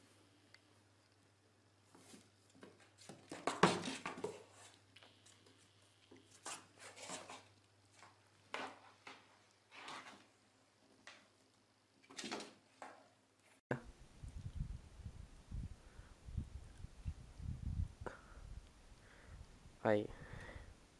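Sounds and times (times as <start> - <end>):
cat claws scratching cardboard box: 6.3 - 7.5.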